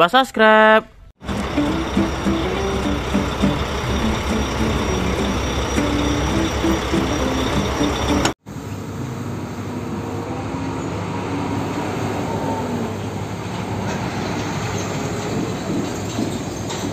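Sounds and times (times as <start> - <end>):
stepped tones: 1.2 - 8.4
truck diesel engine running: 1.2 - 8.4
road noise: 1.2 - 16.9.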